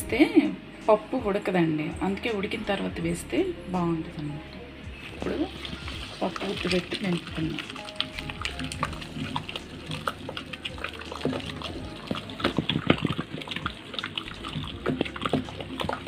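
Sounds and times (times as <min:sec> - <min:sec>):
wet squelching of mashed lentils: 0:05.1 - 0:16.0.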